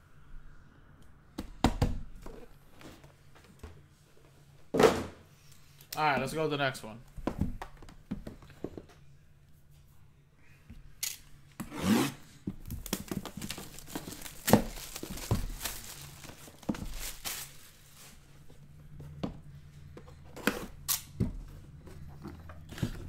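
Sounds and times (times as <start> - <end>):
plastic wrap tearing and crinkling: 12.6 - 18.2.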